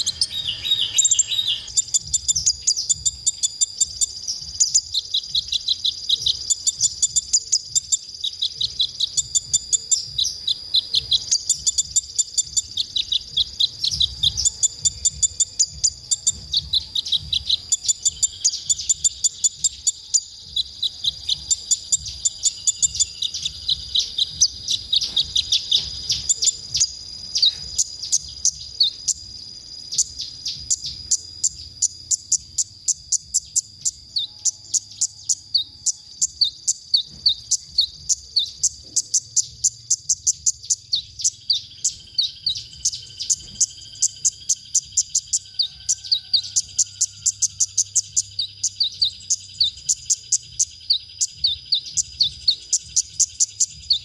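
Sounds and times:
steady high-pitched buzz: 0:00.0 - 0:45.5
bird chirping rapidly: 0:00.0 - 0:54.0.

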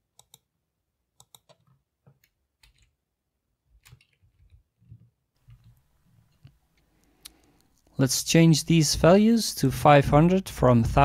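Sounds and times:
keyboard keys clicking: 0:01.2 - 0:02.9, 0:03.8 - 0:04.6.

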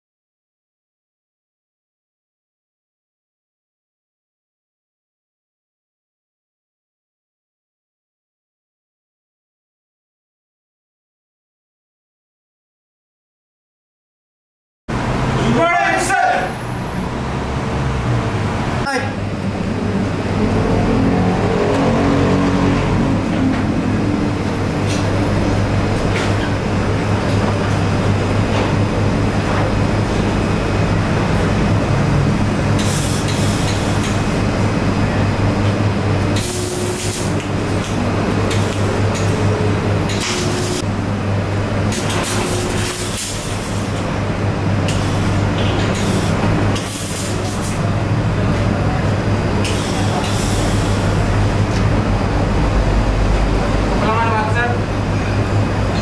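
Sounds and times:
machinery humming: 0:14.9 - 0:56.0.

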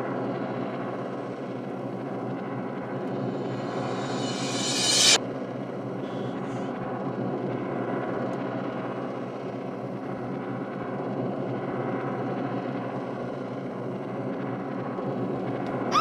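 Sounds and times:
low suspense drone: 0:02.8 - 0:05.2.

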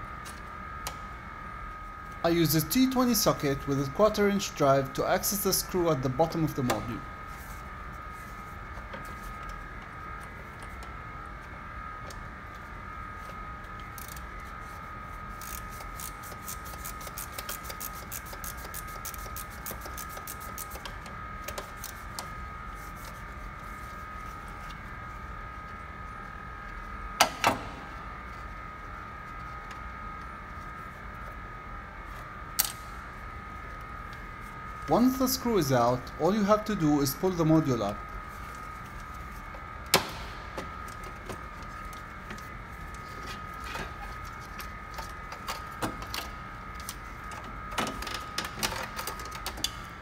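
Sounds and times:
steady high-pitched hum: 0:00.0 - 0:50.0
ratchet clicking rapidly: 0:15.4 - 0:20.8.

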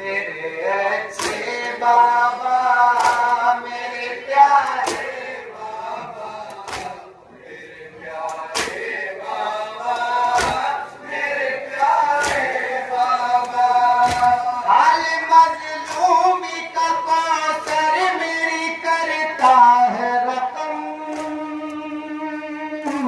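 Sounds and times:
men chanting a lament: 0:00.0 - 0:23.0
hand slaps on chest: 0:06.7 - 0:07.0, 0:08.5 - 0:08.8, 0:10.4 - 0:10.7, 0:12.2 - 0:12.5, 0:14.0 - 0:14.4.

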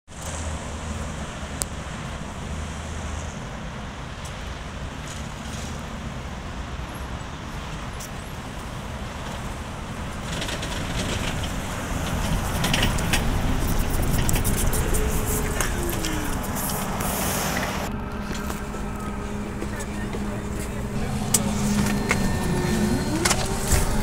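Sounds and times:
street traffic: 0:00.1 - 0:24.0
trolleybus approaching: 0:00.1 - 0:24.0
crackling hiss: 0:11.4 - 0:19.2.

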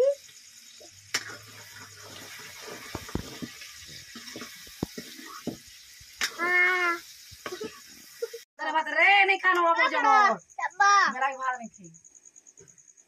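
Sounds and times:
curry sizzling: 0:00.0 - 0:08.5
wood fire crackling: 0:01.0 - 0:08.4
spatula scraping pan: 0:01.2 - 0:05.7.

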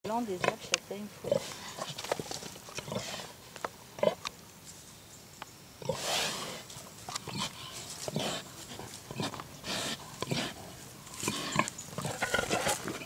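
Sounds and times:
pig snuffling and grunting: 0:05.8 - 0:13.0.

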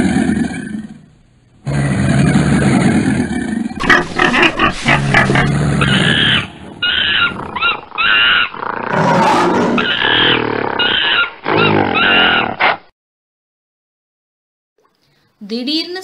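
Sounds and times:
animal growl: 0:00.0 - 0:12.8
animal grunts: 0:00.0 - 0:12.8.

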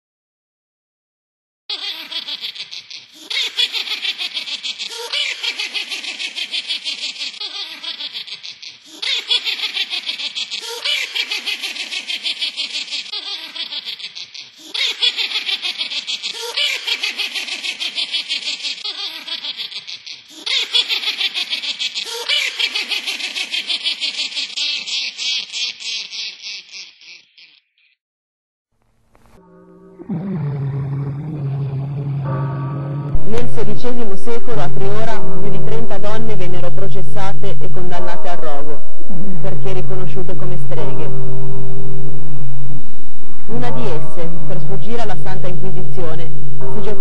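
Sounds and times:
high-pitched cackling laugh: 0:01.7 - 0:27.6.

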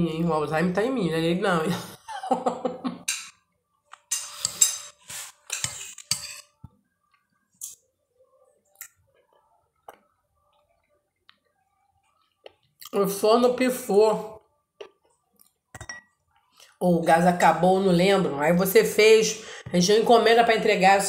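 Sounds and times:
dishes and cutlery clinking: 0:03.0 - 0:06.8, 0:15.7 - 0:16.2.

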